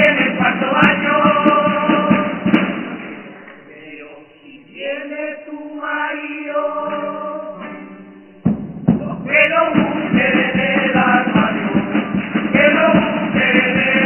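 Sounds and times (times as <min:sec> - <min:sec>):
men's chorus singing in unison: 0:00.0 - 0:02.8, 0:03.8 - 0:07.8, 0:09.1 - 0:14.0
sharp drum strokes: 0:00.0 - 0:03.4, 0:07.6 - 0:14.0
acoustic guitars: 0:00.0 - 0:14.0.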